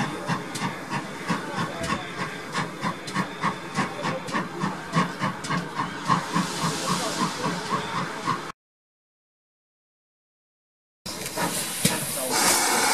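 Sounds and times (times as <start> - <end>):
steam hissing: 0.0 - 8.5, 11.1 - 12.9
steam locomotive exhaust beats: 0.0 - 8.5, 11.1 - 12.9.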